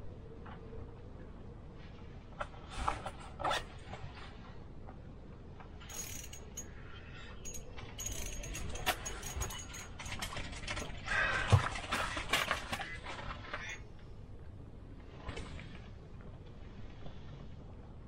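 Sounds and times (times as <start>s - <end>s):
fishing reel clicking and rattling: 5.9s - 6.7s, 7.4s - 10.4s.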